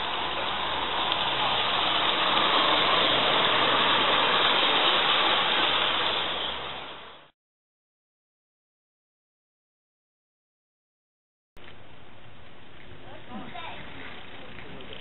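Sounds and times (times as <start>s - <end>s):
steam locomotive exhaust hissing: 0.0s - 7.3s.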